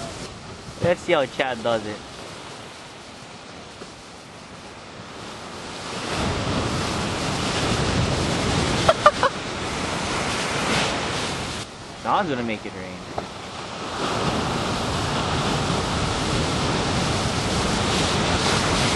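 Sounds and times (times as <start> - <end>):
wind on microphone: 0.0 - 12.1, 13.0 - 18.9
ocean surf breaking: 0.0 - 18.9.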